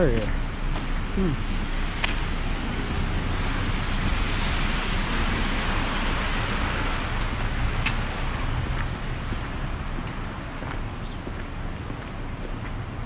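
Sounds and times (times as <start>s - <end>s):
low traffic rumble: 0.0s - 13.0s
tyres hissing on wet pavement: 0.9s - 9.1s.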